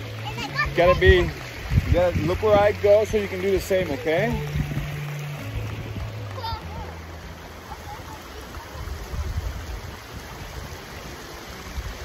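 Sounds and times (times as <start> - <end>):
low rumbles: 0.0 - 7.7
stream running over stones: 0.0 - 12.0.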